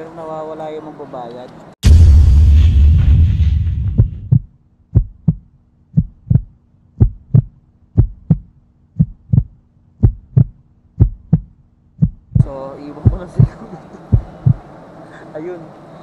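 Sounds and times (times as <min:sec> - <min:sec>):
loud boom: 0:01.8 - 0:04.4
heartbeat thumps: 0:01.8 - 0:14.7.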